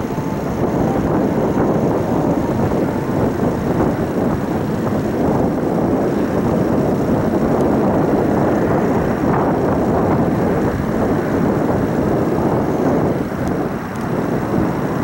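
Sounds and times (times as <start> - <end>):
jet engines rumbling: 0.0 - 15.0
wind buffeting microphone: 0.0 - 15.0.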